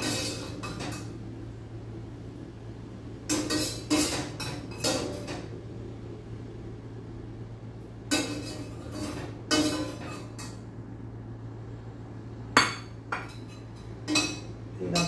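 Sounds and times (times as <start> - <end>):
metal skimmer clinking on pot: 8.1 - 10.6.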